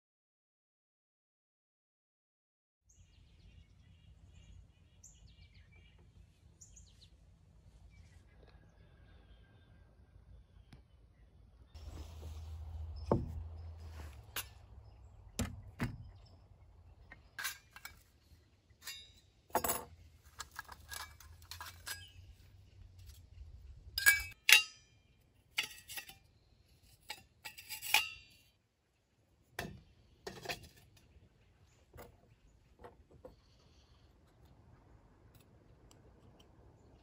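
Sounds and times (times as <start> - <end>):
metal parts clinking on wood: 17.1 - 18.2, 18.8 - 22.3, 24.0 - 24.8.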